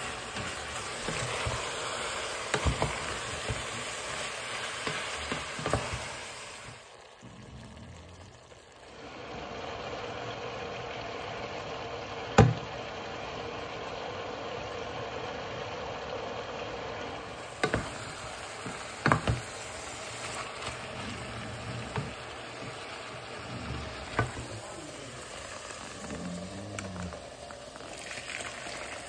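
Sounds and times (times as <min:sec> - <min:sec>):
wooden spoon stirring: 0:00.0 - 0:06.3
sauce sizzling in a pot: 0:00.0 - 0:29.0.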